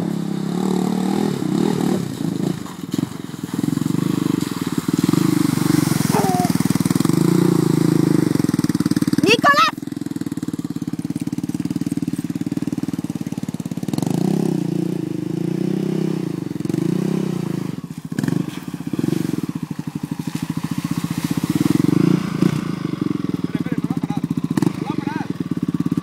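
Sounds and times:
quad engine revving: 0.0 - 26.0.

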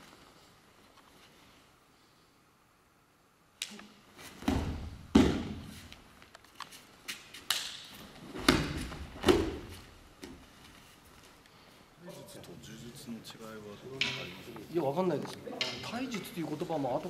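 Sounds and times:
bodies thudding on mats: 4.2 - 6.0, 8.0 - 10.6.

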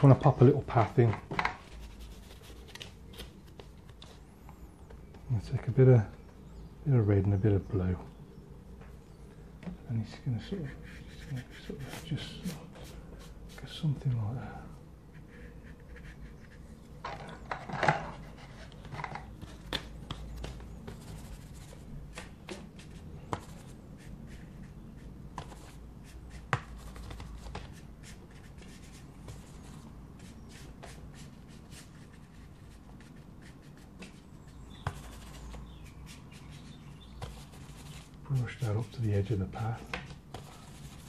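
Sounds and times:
paintbrush rubbing on paper: 1.6 - 3.1, 10.4 - 13.8, 15.1 - 16.8, 20.2 - 41.0.

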